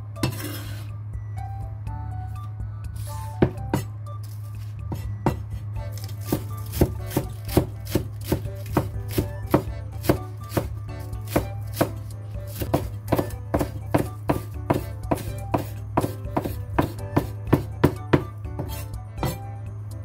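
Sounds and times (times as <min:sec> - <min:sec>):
low steady hum: 0:00.0 - 0:20.0
cleaver chopping on wooden board: 0:03.4 - 0:03.9, 0:06.0 - 0:19.4.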